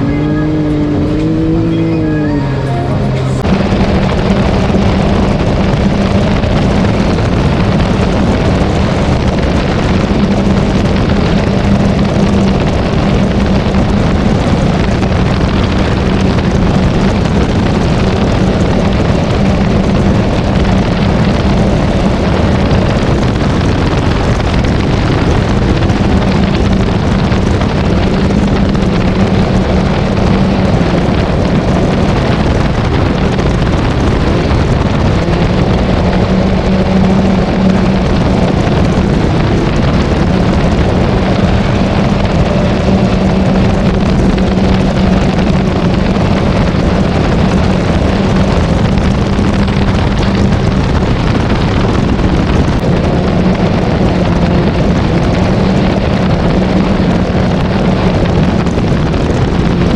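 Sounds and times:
engine running at speed: 0.0 - 59.9
wind rushing over microphone: 0.0 - 59.9.

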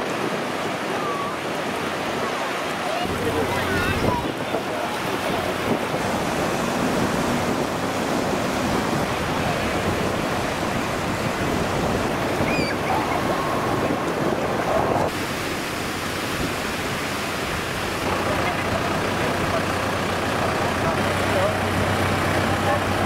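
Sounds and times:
small waves breaking: 0.0 - 23.0
wind on microphone: 3.0 - 18.8.

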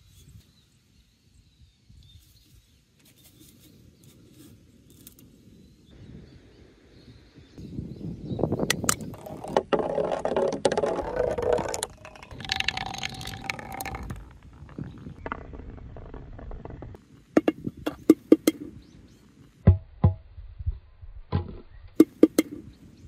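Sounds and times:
ball rolling through gutter and pipe: 8.6 - 18.8.

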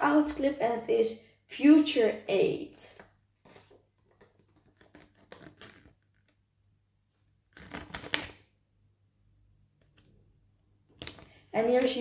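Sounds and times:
paper crinkling and rustling: 3.4 - 6.2.

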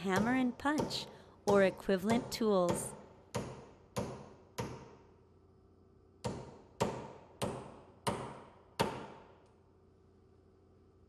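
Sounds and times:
hammer striking metal punch: 0.0 - 5.0, 6.2 - 9.3.

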